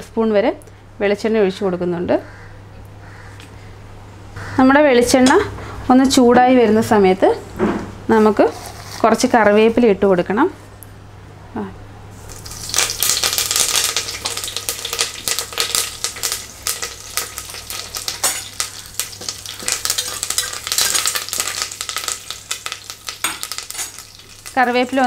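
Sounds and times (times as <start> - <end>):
leaves crackling in hot oil: 12.1 - 25.0
metal spoon stirring: 17.7 - 22.3.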